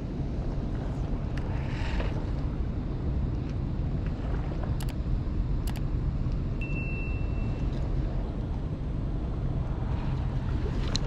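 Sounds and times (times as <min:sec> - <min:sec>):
thin high steady tone: 0:06.6 - 0:07.6.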